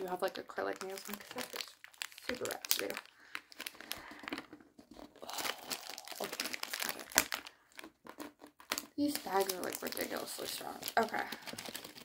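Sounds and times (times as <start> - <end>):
plastic bag crinkling: 0.0 - 12.0
sharp plastic crack: 6.2 - 12.0.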